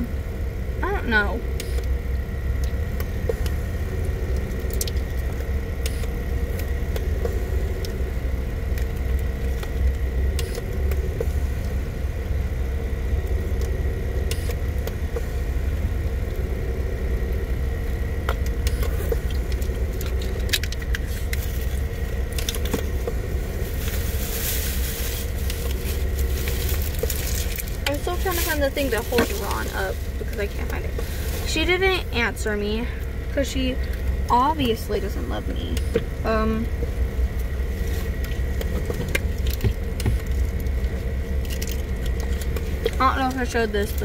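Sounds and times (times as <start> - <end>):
car idling: 0.0 - 44.0
plastic bag rustling: 22.8 - 31.6.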